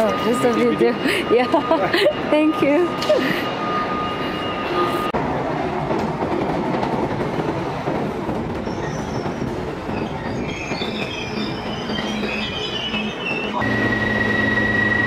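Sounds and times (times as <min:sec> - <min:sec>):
train rumble: 0:00.0 - 0:15.0
wheel and brake squeals: 0:08.6 - 0:15.0.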